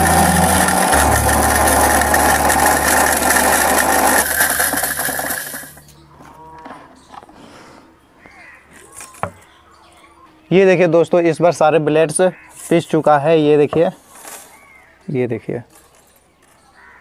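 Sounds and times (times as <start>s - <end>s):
mixer grinder grinding metal: 0.0s - 5.9s
motor hum: 0.0s - 6.6s.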